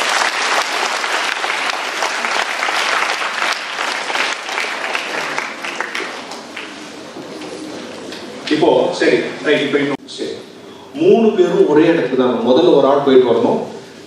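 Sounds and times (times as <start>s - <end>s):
audience applause: 0.0s - 8.0s.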